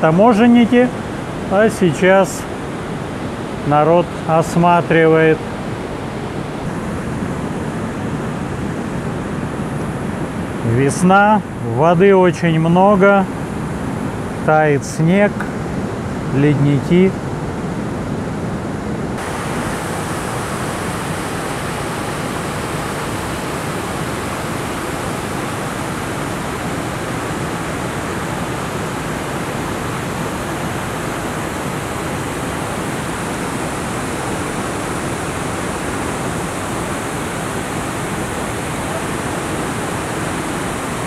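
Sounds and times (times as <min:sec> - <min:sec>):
water rushing over a weir: 0:19.2 - 0:41.0.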